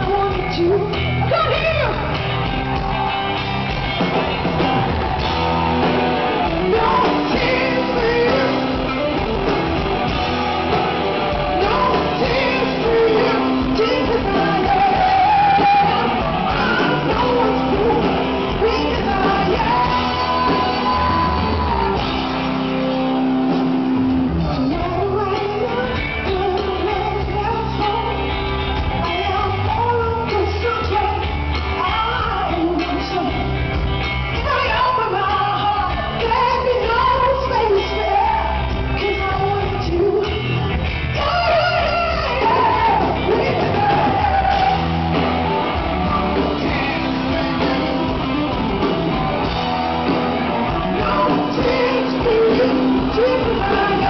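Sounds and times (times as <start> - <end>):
woman singing: 0.0 - 2.1, 6.4 - 9.6, 11.4 - 22.2, 24.4 - 28.4, 29.0 - 33.6, 34.3 - 44.9, 50.8 - 54.0
rock band playing loud: 0.0 - 54.0.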